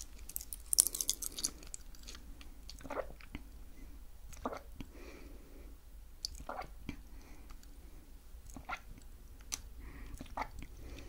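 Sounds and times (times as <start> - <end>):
chewing soft sweets: 0.0 - 3.5.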